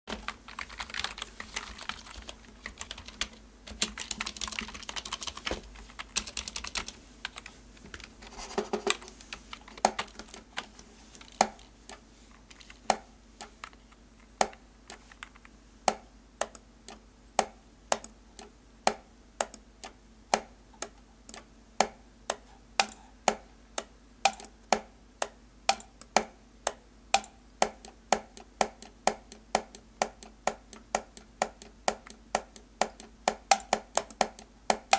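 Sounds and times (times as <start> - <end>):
keyboard typing: 0.1 - 19.6, 27.2 - 34.9
keystrokes and mouse clicks: 0.1 - 34.9.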